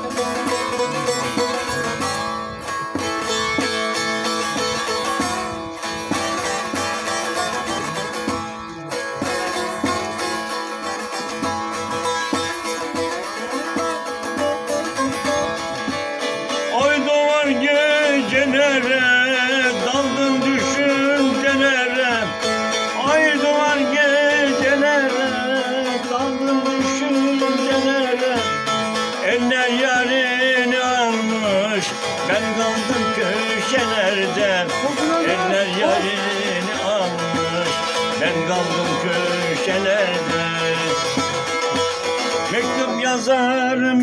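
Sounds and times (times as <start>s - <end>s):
plucked long-necked lute melody: 0.0s - 44.0s.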